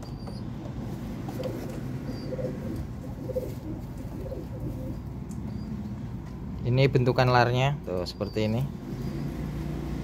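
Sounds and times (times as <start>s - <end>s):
pigeons cooing: 1.2s - 5.9s.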